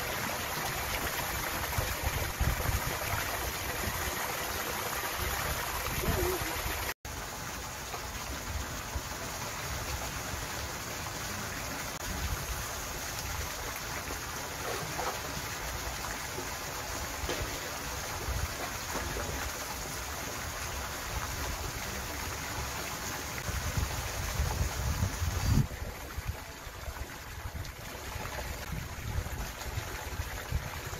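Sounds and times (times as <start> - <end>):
rushing water: 0.0 - 30.9
water splashing: 0.0 - 30.9
wind buffeting microphone: 1.7 - 4.0, 23.4 - 26.5.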